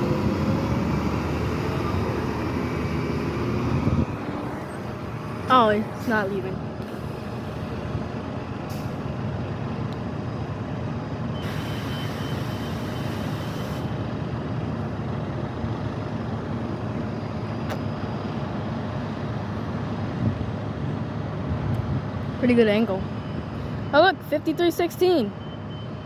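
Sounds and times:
bus engine idling: 0.0s - 26.0s
air brake hiss: 11.4s - 14.0s.

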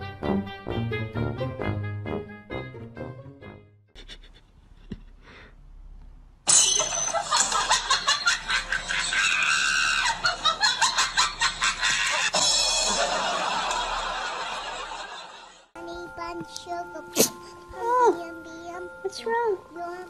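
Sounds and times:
person laughing and shrieking: 8.9s - 12.4s.

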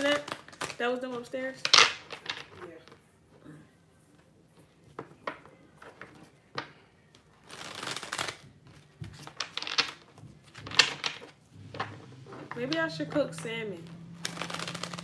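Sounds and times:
cards shuffling: 0.0s - 3.0s, 4.9s - 15.0s
cards snapping: 7.4s - 11.9s, 14.1s - 15.0s
cards laid on table: 8.3s - 13.5s.

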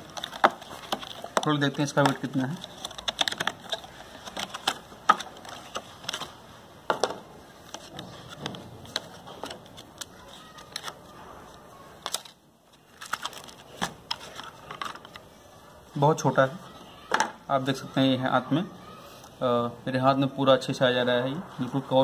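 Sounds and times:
plastic packaging crinkling: 0.0s - 6.4s, 7.5s - 15.4s.

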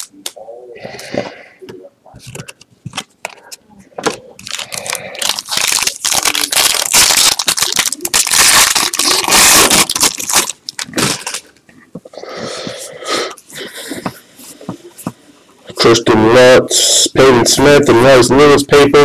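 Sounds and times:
cards rustling: 2.2s - 11.6s
foil wrapper tearing and crinkling: 4.4s - 11.5s.

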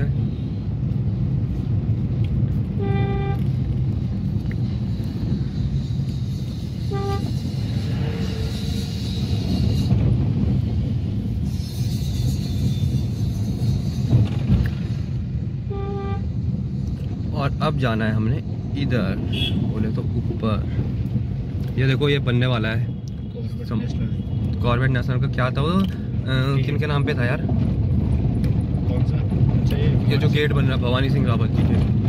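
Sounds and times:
car horn toots: 2.8s - 3.5s, 6.9s - 7.4s, 15.7s - 16.3s, 19.3s - 19.6s.

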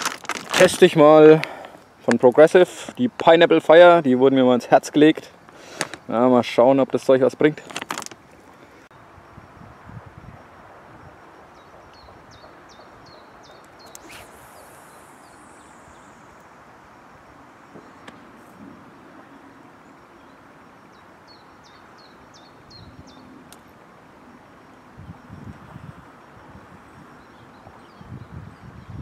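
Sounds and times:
steady background hiss: 0.0s - 29.0s
bird singing high notes: 11.6s - 18.4s
line running off reel: 13.5s - 18.7s.

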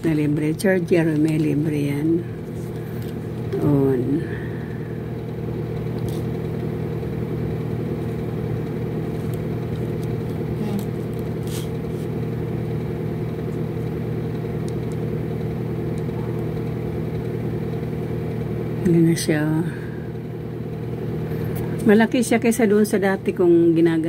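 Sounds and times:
machine motor humming: 0.0s - 24.0s.

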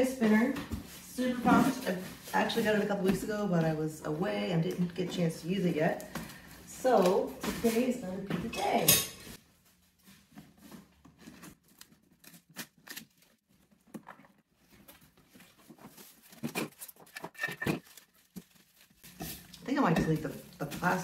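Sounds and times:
plastic packaging rustling: 0.4s - 3.8s, 9.4s - 21.0s.

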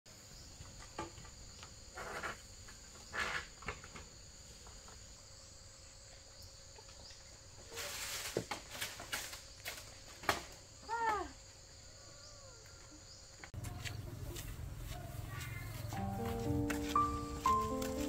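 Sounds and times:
insects trilling: 0.1s - 14.2s
rustling noises: 7.5s - 10.3s, 13.4s - 18.0s.

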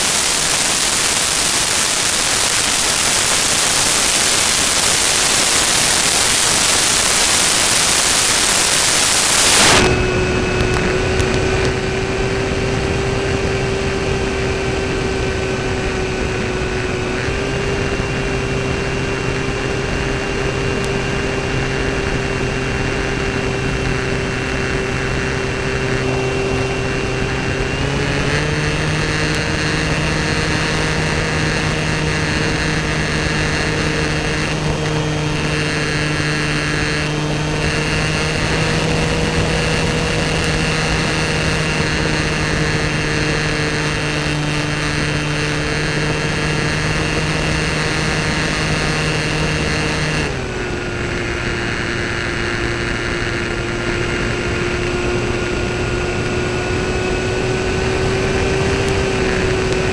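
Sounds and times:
loud even hiss: 0.0s - 10.0s
electric motor and propeller whine: 0.0s - 59.9s.

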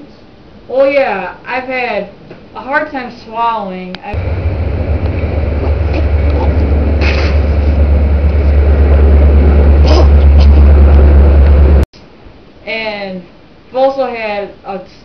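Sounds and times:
loud low rumble: 4.2s - 11.9s.

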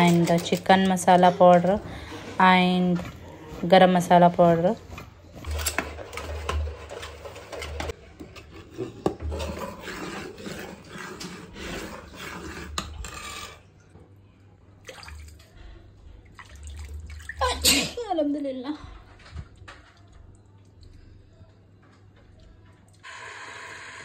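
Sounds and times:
food handled in steel bowls: 0.0s - 11.0s.

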